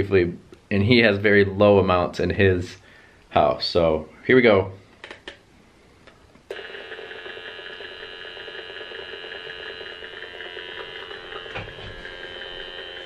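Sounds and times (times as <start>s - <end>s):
meter speaker buzzing tones: 6.5s - 13.0s.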